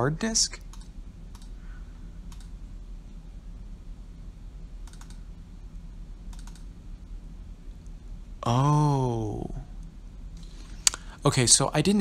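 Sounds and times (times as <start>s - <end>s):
steady low hum: 0.0s - 12.0s
computer mouse clicks: 0.6s - 1.5s, 2.3s - 2.6s, 4.8s - 5.2s, 6.3s - 6.7s.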